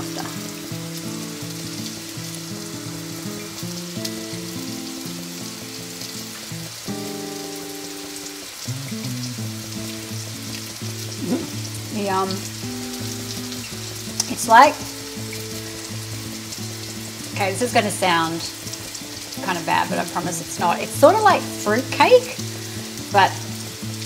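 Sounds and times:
background music: 0.0s - 24.0s
food sizzling in a wok: 0.0s - 24.0s
short vocal sounds: 11.2s - 11.7s.

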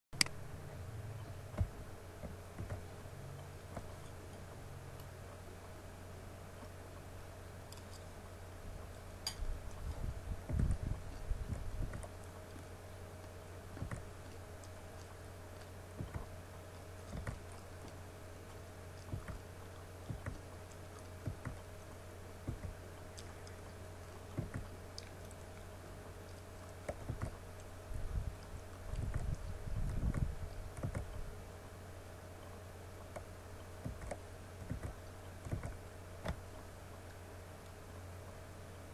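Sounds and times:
steady low hum: 0.1s - 38.9s
low thumps and rumbling: 0.2s - 4.7s, 8.6s - 12.2s, 13.6s - 14.2s, 15.9s - 16.4s, 17.0s - 17.9s, 19.0s - 20.5s, 21.2s - 21.7s, 22.3s - 23.3s, 24.3s - 24.8s, 26.8s - 31.4s, 33.8s - 36.6s.

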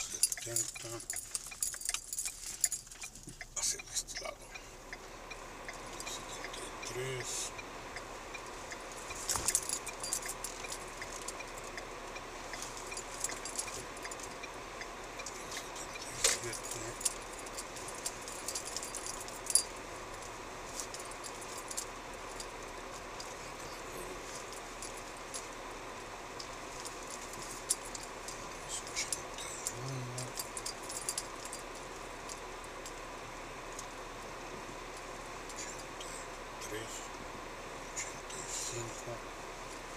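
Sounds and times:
jingling and clinking rattles: 0.0s - 4.6s, 8.4s - 33.0s
faint regular tick: 0.0s - 23.4s, 33.7s - 34.0s
car cabin noise: 0.0s - 39.9s.

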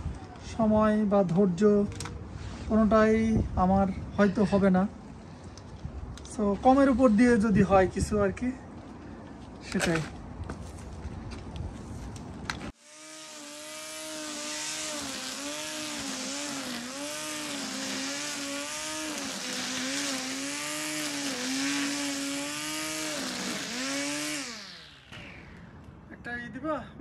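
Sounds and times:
string trimmer cutting grass: 12.6s - 25.7s.

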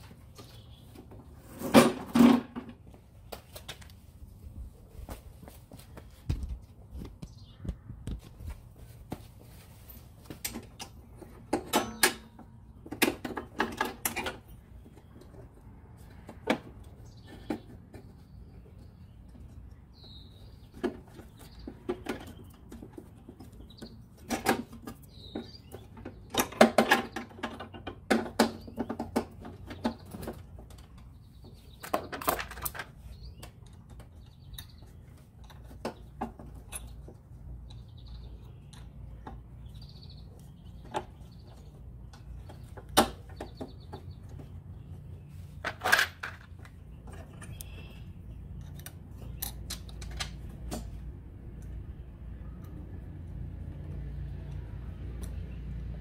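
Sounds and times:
mower parts clicking and rattling: 0.0s - 4.1s, 8.8s - 52.0s
faint bird chirps: 47.3s - 49.5s.

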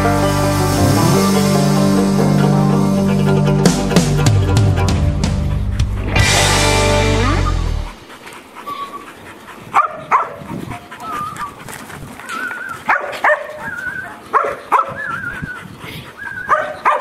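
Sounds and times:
dog whining: 8.6s - 9.2s, 11.0s - 11.6s, 12.3s - 12.9s, 13.5s - 16.8s
dog barking: 9.7s - 11.4s, 12.8s - 15.3s, 16.2s - 17.0s.

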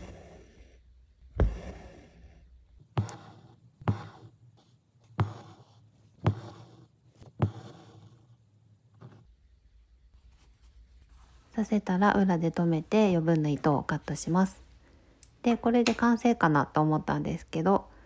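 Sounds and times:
needle tapping through fabric: 2.9s - 4.3s, 5.0s - 5.6s, 6.2s - 7.8s.

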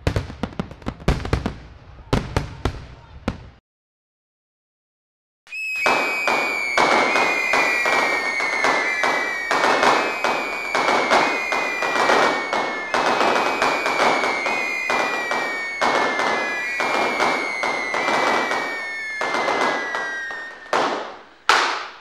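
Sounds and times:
barrage of sharp cracks and bangs: 5.8s - 22.0s.

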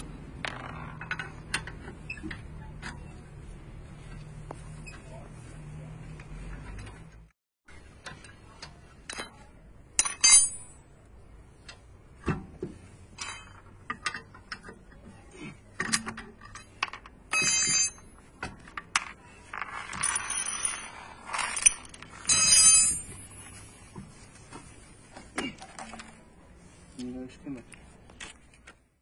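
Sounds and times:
wrench and bolts clinking: 10.0s - 10.8s, 15.8s - 18.1s, 19.0s - 23.4s.

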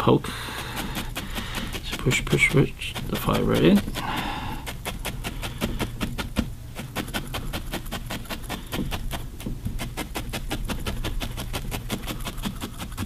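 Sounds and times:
felting needle stabbing wool: 0.6s - 13.0s.

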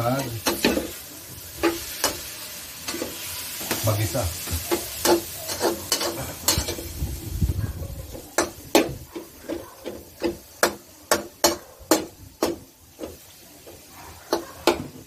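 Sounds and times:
metal spatula scraping a wok: 0.0s - 7.0s.

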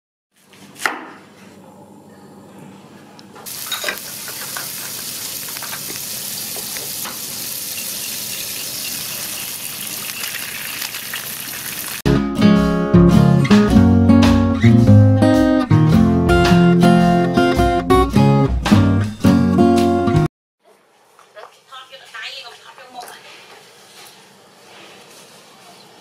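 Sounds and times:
oil sizzling in a frying pan: 3.5s - 12.0s
acoustic guitar music: 12.1s - 20.3s.

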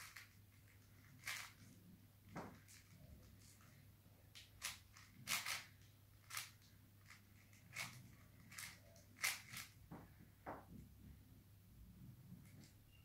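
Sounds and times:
puzzle cube clicking as twisted: 0.0s - 1.7s, 4.4s - 9.7s.

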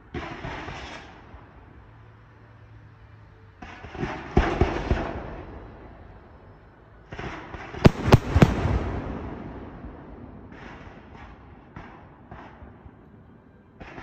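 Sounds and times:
fireworks bangs: 7.1s - 13.0s.

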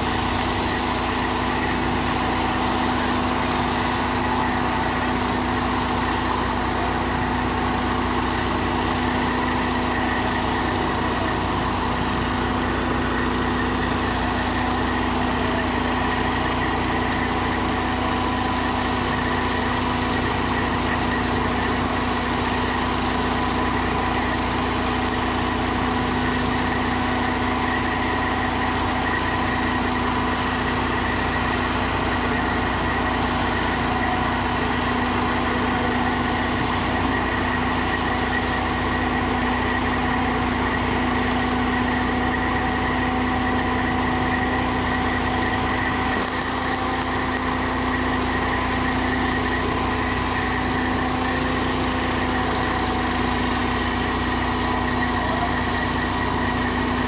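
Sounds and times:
diesel engine idling: 0.0s - 57.0s.

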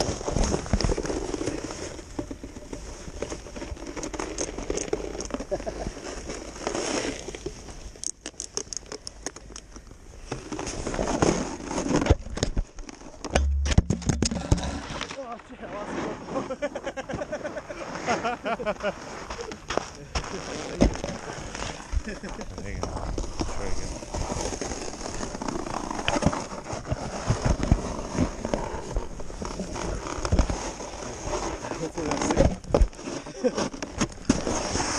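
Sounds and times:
camera rubbing against jacket: 0.0s - 7.9s, 10.2s - 13.2s, 15.8s - 34.9s
camera knocks: 13.3s - 14.8s.

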